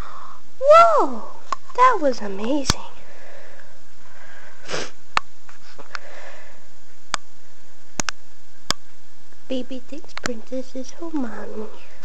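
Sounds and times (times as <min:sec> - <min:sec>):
sharp sniff: 0:04.6 - 0:05.0.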